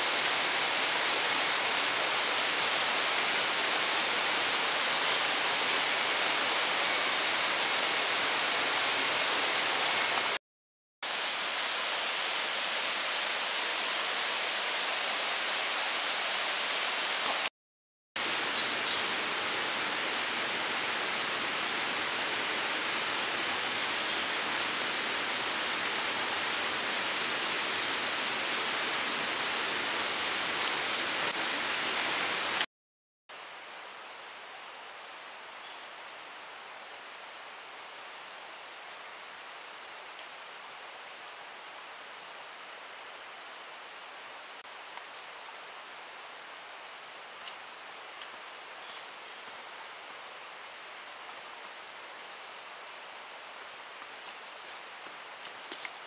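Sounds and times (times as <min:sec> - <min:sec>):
dense rushing hiss: 0:00.0 - 0:10.4, 0:11.1 - 0:17.5, 0:18.2 - 0:32.7
insects droning: 0:00.0 - 0:10.4, 0:11.1 - 0:17.5, 0:33.3 - 0:56.0.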